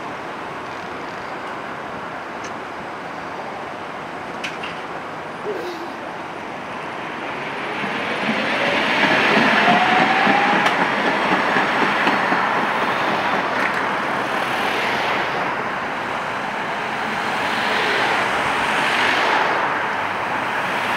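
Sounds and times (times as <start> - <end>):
wheels rumbling on rails: 0.0 - 20.9
tram motor whine rising: 6.9 - 11.8
cars passing by: 12.8 - 20.9.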